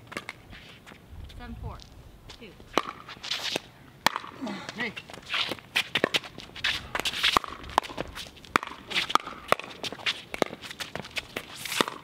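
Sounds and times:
paddles hitting plastic ball: 5.9 - 12.0.

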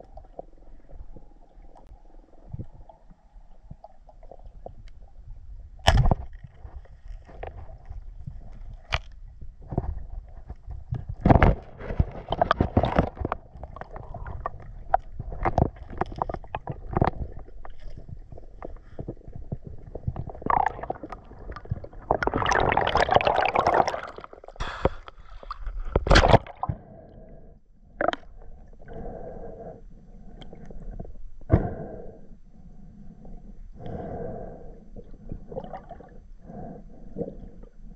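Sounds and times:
water churning and gurgling underwater: 0.0 - 37.9
rush of bubbles: 20.0 - 25.0, 35.6 - 36.1.

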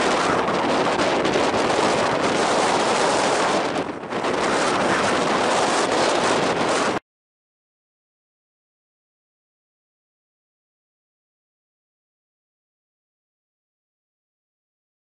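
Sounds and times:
strong wind buffeting microphone: 0.0 - 7.0.

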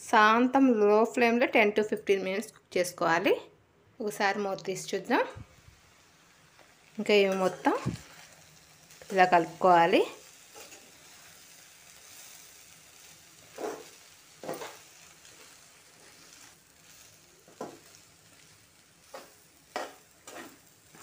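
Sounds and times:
faint sizzle: 0.0 - 21.0
metal spatula scraping pan: 13.5 - 17.0, 19.0 - 21.0.

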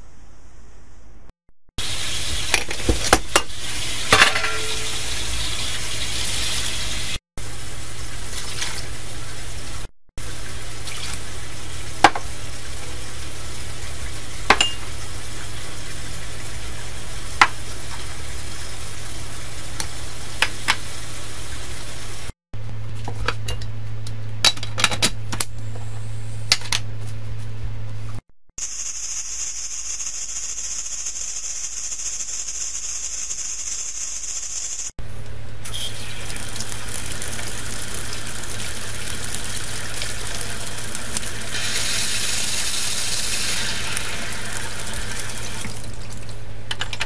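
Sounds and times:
kitchen hum: 0.0 - 47.0
pressure cooker steam hissing: 41.5 - 45.4.

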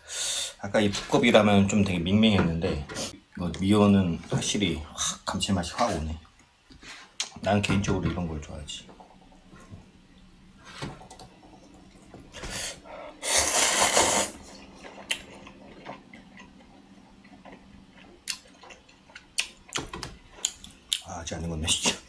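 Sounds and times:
person slurping noodles: 12.8 - 15.4.

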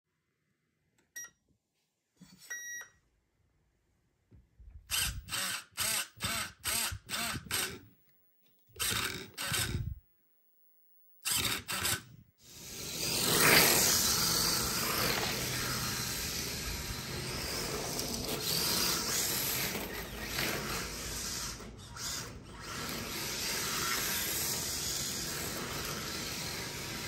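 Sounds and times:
servo whirring: 4.8 - 7.9, 8.7 - 10.0, 11.2 - 27.0.

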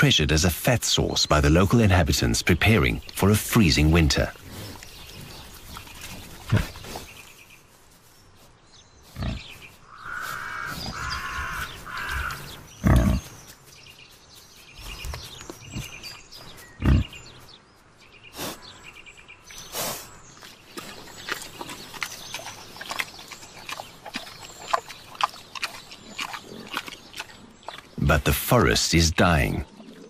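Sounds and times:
wild boar grunting: 3.4 - 7.2, 9.0 - 13.4, 14.8 - 17.4, 19.6 - 28.5
boar high calls: 9.9 - 13.2.

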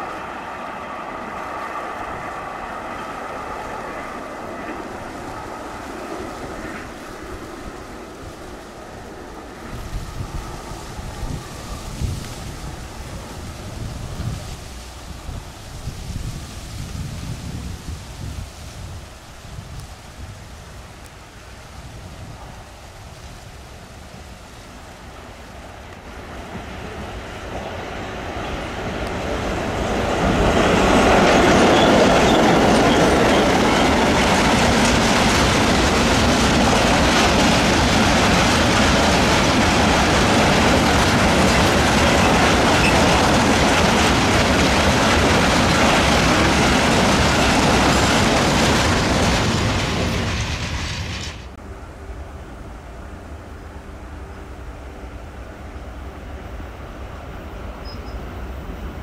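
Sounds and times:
freight train passing: 0.0 - 59.0
wheels clattering on rails: 22.2 - 51.6.

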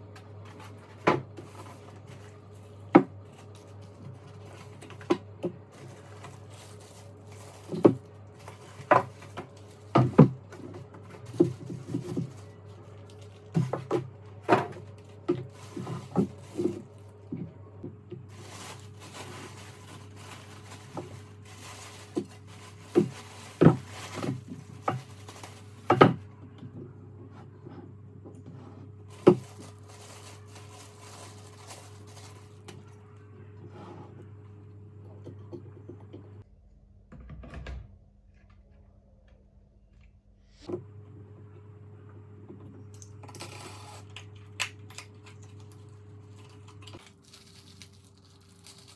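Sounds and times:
plastic wrapping rustling: 0.4 - 17.4, 18.1 - 26.2, 29.1 - 33.0, 45.2 - 48.9.

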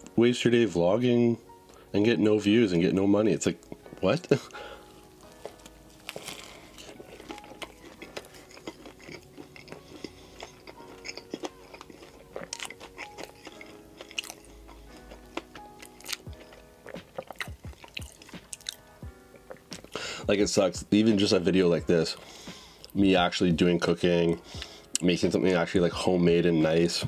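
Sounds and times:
quiet background music: 0.0 - 27.0
crunchy chewing of sandwich: 4.5 - 20.0.

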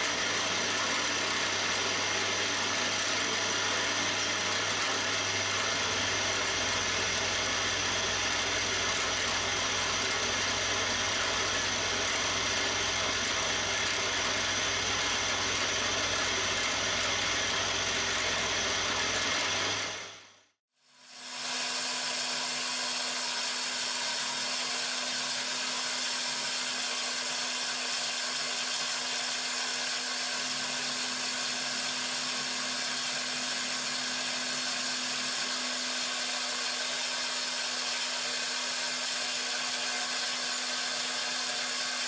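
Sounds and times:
end mill cutting metal: 21.1 - 42.0
milling machine hum: 21.1 - 42.0.

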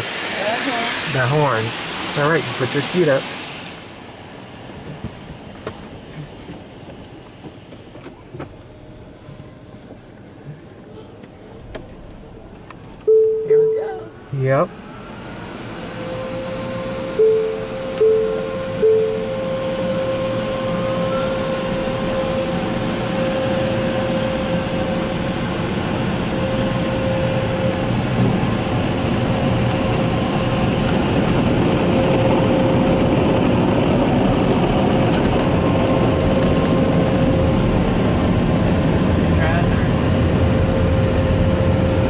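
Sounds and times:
rushing air: 0.0 - 7.6, 19.4 - 42.0
car wash machinery hum: 0.0 - 42.0
faint steady whine: 0.0 - 42.0.

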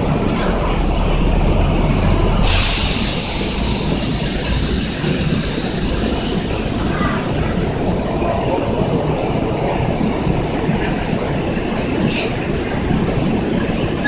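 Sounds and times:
train humming: 0.0 - 14.0
compressed air hissing: 2.4 - 7.5.

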